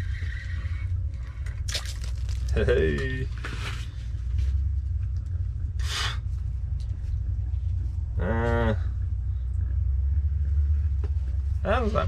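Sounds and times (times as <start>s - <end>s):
steady low rumble: 0.0s - 12.0s
man humming: 8.2s - 9.0s.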